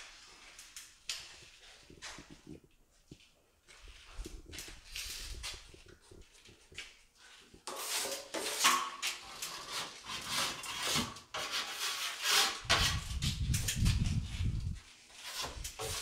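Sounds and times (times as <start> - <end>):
trowel scraping joint compound: 7.2 - 16.0.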